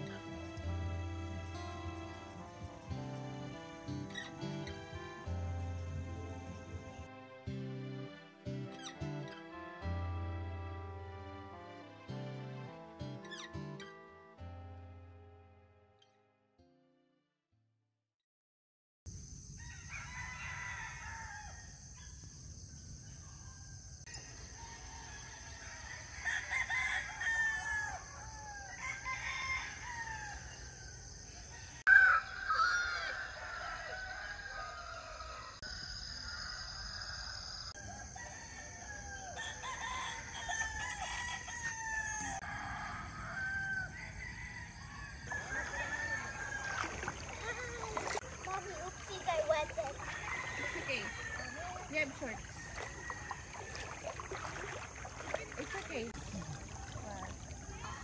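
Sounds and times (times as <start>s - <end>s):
roosters crowing and clucking: 19.6s - 21.9s, 24.1s - 58.0s
bird calls: 45.3s - 58.0s.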